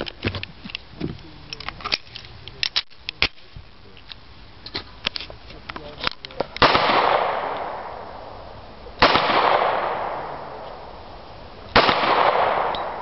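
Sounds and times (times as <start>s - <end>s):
pistol shots with echo: 6.6s - 8.4s, 9.0s - 11.0s, 11.7s - 13.0s.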